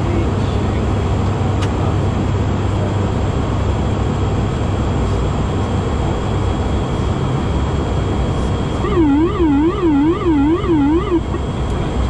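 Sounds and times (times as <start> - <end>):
low engine hum: 0.0 - 12.0
faint high whine: 8.7 - 11.4.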